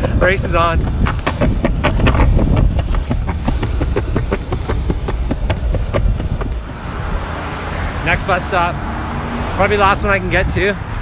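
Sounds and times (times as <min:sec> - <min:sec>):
skateboard clacks: 0:00.0 - 0:06.8
skateboard wheels rumbling on concrete: 0:00.0 - 0:07.6.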